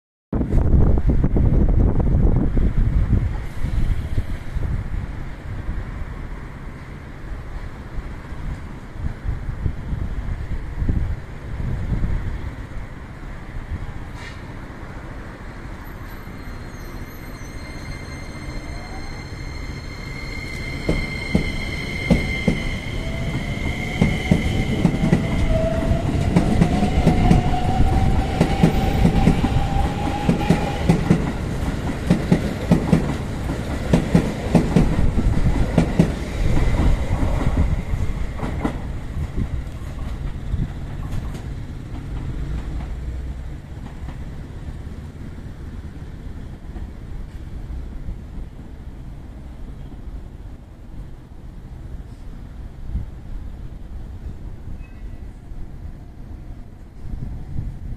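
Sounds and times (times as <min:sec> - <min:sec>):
train wheels clacking over rail joints: 0:24.0 - 0:44.3.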